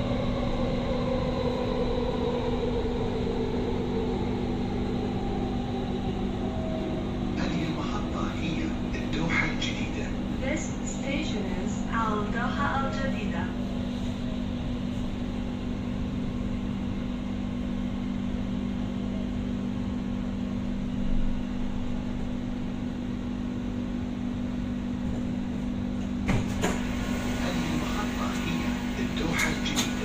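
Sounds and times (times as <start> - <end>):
wheels rumbling on rail: 0.0 - 17.0, 24.8 - 30.0
train hum: 0.0 - 30.0.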